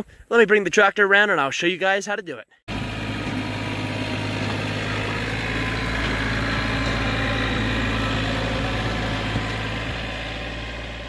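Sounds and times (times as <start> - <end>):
tractor diesel engine running: 2.7 - 11.0.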